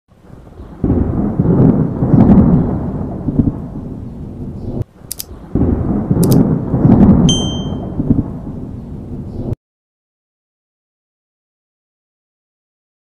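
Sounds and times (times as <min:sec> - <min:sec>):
thunder rumbling: 0:00.2 - 0:09.6.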